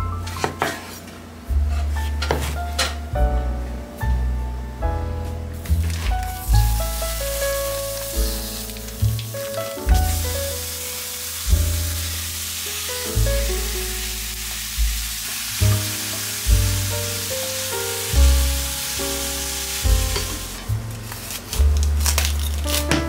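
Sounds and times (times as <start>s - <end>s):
background music with bass line: 1.4s - 23.0s
meat sizzling in a skillet: 6.3s - 20.7s.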